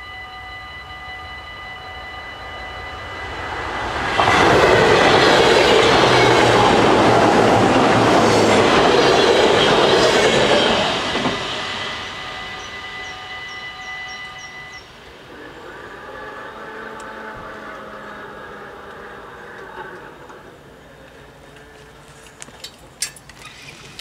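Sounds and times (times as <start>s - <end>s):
level crossing bells ringing: 0.0s - 7.7s
rush of passing train: 0.0s - 24.0s.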